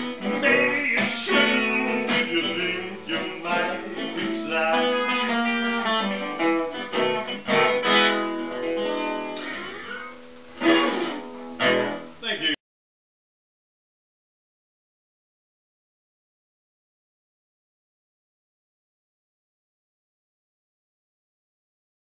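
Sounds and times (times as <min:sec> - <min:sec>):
acoustic guitar blues: 0:00.0 - 0:12.2.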